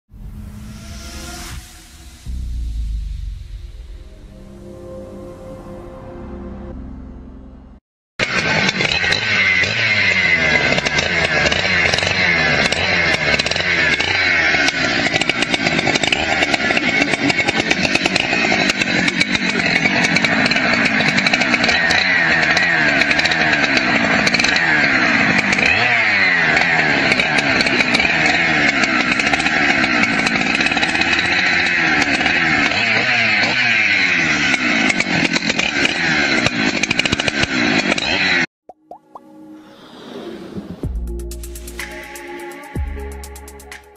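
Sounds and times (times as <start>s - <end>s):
chainsaw engine revving: 8.2s - 38.5s.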